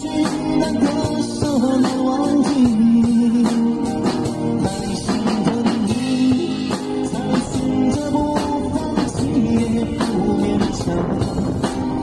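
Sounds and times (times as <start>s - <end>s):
drum kit: 0.0s - 12.0s
man singing: 0.0s - 12.0s
strummed acoustic guitar: 0.0s - 12.0s.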